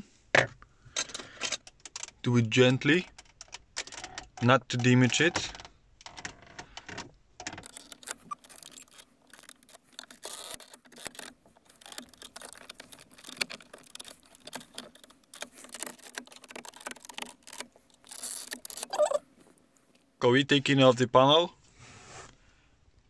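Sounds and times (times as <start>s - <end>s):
plastic clicks and creaks: 0.3s - 20.1s
screwdriver scraping plastic trim: 7.6s - 19.2s.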